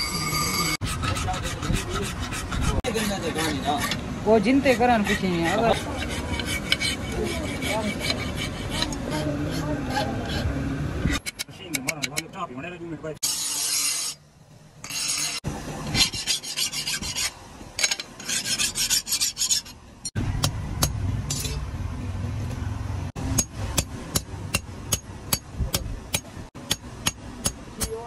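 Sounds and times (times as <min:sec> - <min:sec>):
file rasping on metal blade: 0:00.0 - 0:11.5, 0:13.2 - 0:14.2, 0:14.8 - 0:19.8.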